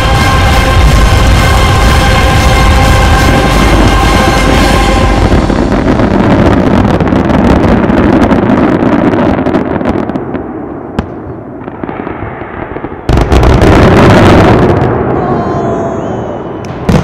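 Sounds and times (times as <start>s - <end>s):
sharp bang: 0.0s - 6.4s
firework bursts and crackling: 0.0s - 17.0s.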